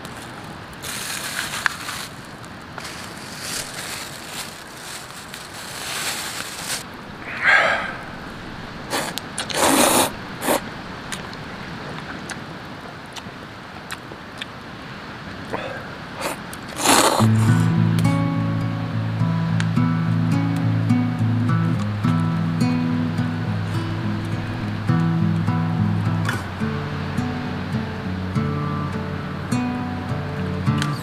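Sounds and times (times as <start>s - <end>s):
wood fire crackling: 16.0s - 17.8s.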